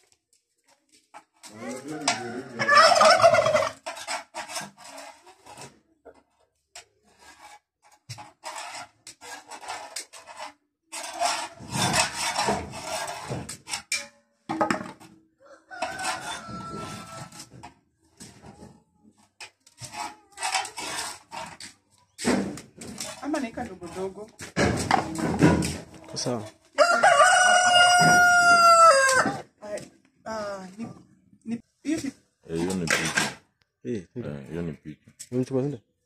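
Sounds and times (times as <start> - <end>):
turkeys gobbling: 2.0 - 3.8.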